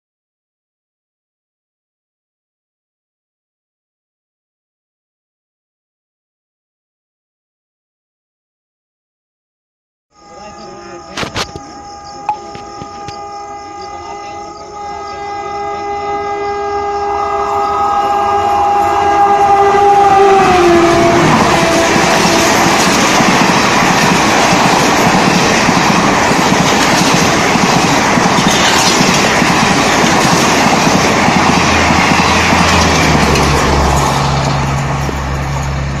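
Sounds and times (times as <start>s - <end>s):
train horn: 10.1s - 35.2s
train wheels clattering past: 20.7s - 36.0s.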